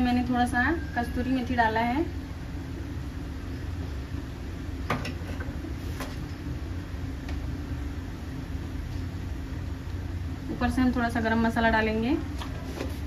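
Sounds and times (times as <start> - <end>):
low kitchen hum: 0.0 - 13.0
faint held tone: 0.5 - 1.5.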